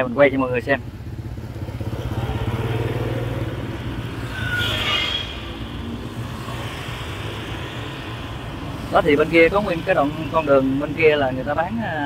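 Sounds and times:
motorbike engine running: 0:00.7 - 0:04.2.

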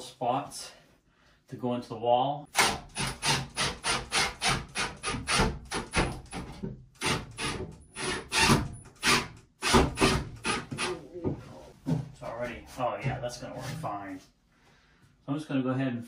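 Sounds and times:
power drill driving screw into wood: 0:02.5 - 0:06.3, 0:07.0 - 0:10.9.

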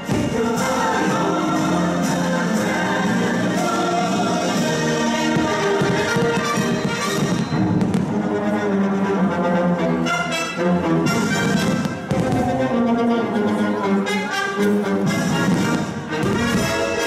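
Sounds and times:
fireworks bursting: 0:00.0 - 0:08.3, 0:11.1 - 0:12.7, 0:15.1 - 0:17.0
orchestral music: 0:00.0 - 0:17.0.

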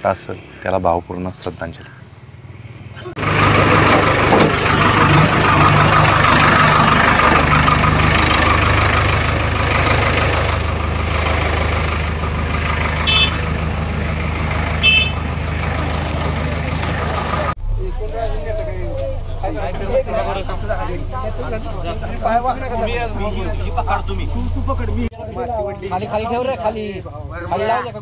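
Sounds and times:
backhoe diesel engine running: 0:03.0 - 0:25.1.

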